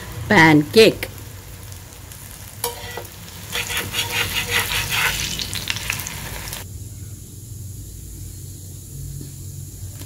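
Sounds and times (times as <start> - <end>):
cutlets sizzling in oil: 0.0 - 6.6
spatula scraping a pan: 2.6 - 6.0.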